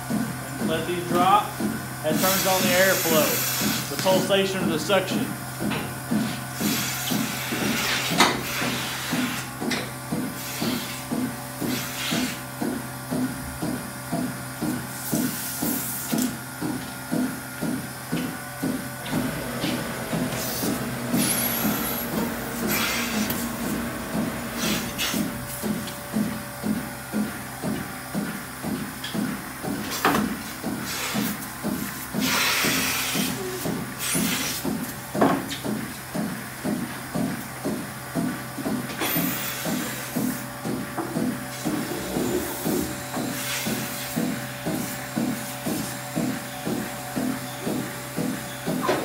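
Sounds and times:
milking machine hissing clicks: 0.1s - 49.0s
loud air hiss: 2.1s - 4.3s, 19.6s - 25.2s
vacuum system hum: 12.4s - 32.1s, 39.6s - 49.0s.

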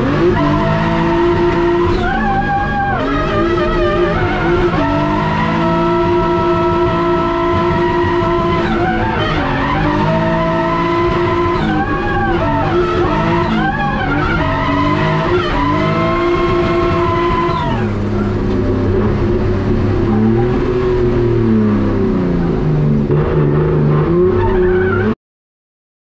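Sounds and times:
car engine revving: 0.0s - 25.2s
tyres skidding: 0.0s - 25.2s.

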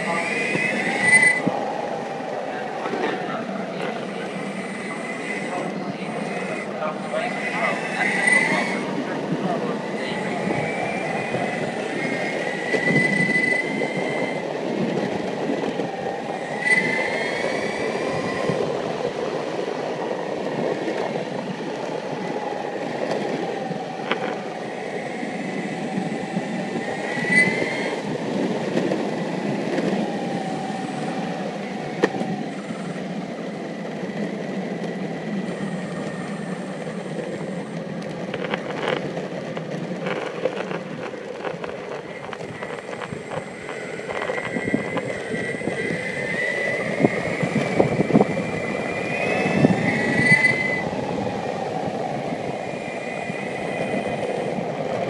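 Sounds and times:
high electric motor whine: 0.0s - 19.9s, 20.6s - 55.0s
skateboard wheels rumbling on asphalt: 0.0s - 55.0s.

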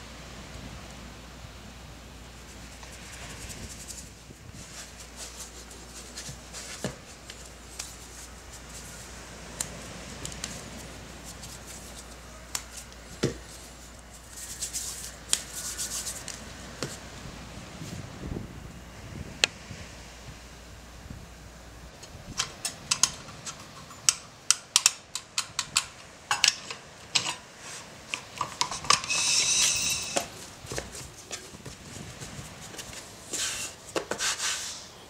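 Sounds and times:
hands rubbing dough: 2.4s - 9.8s, 10.4s - 17.0s, 27.6s - 34.9s.

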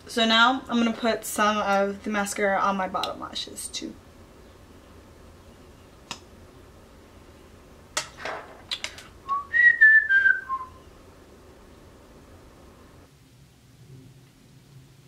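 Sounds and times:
woman whistling: 9.2s - 10.8s.

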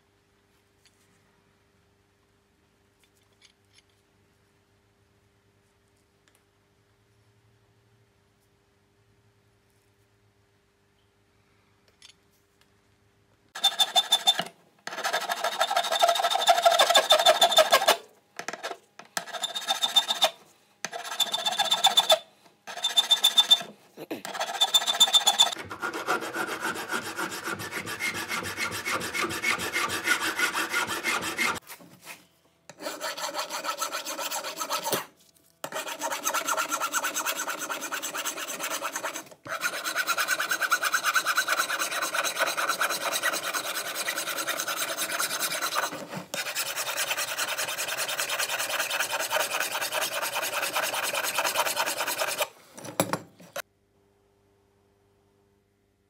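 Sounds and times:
hand file rasping on steel: 13.6s - 18.0s, 19.2s - 31.6s, 32.7s - 52.5s.

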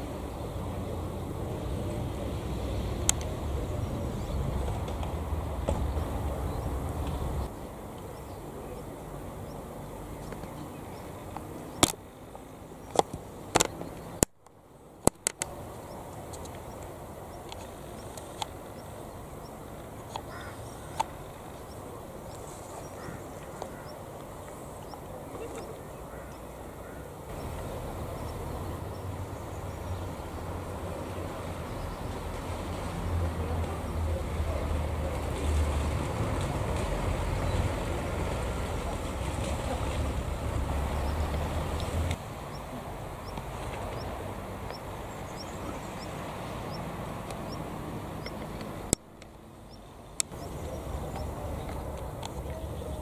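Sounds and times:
low vehicle rumble: 0.0s - 11.8s, 15.3s - 53.0s
outdoor background noise: 0.0s - 53.0s
sharp clicks: 3.0s - 3.3s, 11.3s - 12.0s, 12.8s - 18.6s.

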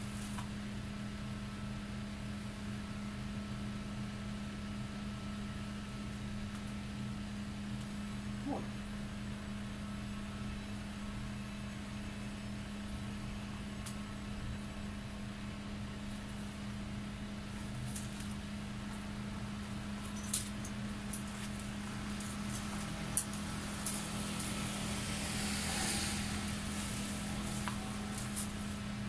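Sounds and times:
motor humming: 20.4s - 29.0s.

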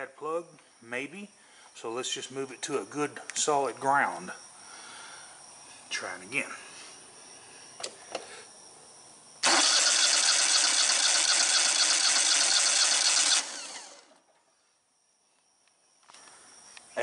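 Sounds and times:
engine cranked by electric starter: 9.4s - 14.2s.

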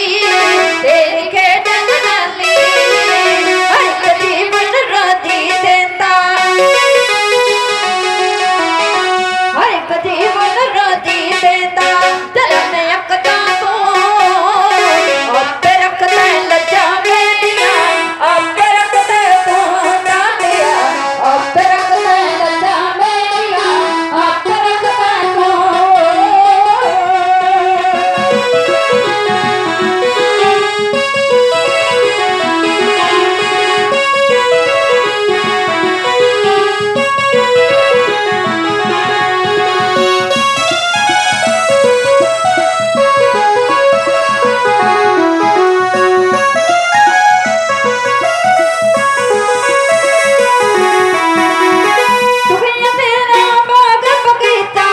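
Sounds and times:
woman singing: 0.0s - 7.1s, 9.5s - 28.4s, 51.4s - 54.9s
electric piano melody: 0.0s - 54.9s.

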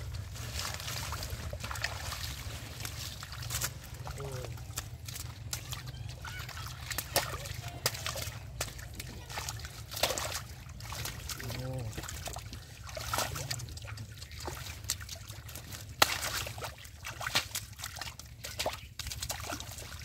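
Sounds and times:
muddy water splashing: 0.0s - 20.0s
sharp slap on water: 16.0s - 16.5s.

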